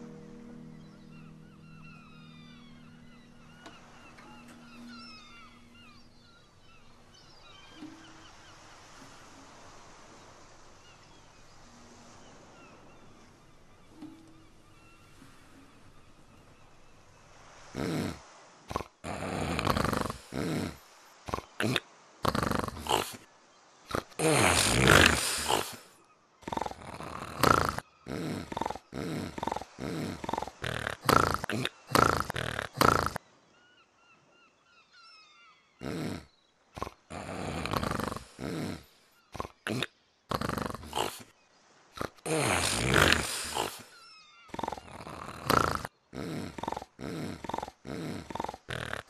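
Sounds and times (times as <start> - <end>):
dog growling: 17.8 - 23.2, 26.4 - 33.2, 36.8 - 41.2, 42.0 - 43.9, 44.5 - 49.0
man growling and barking: 23.9 - 25.8, 42.0 - 43.9.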